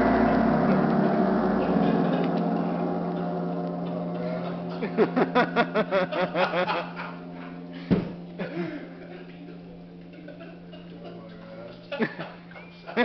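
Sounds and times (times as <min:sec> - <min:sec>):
gong ringing: 0:00.0 - 0:13.0
person laughing rapidly: 0:04.8 - 0:07.1.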